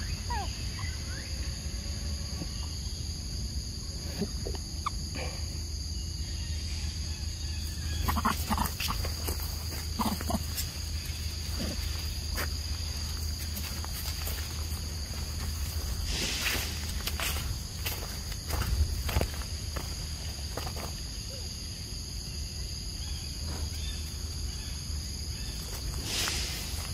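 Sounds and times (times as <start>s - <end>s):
insects droning: 0.0s - 26.9s.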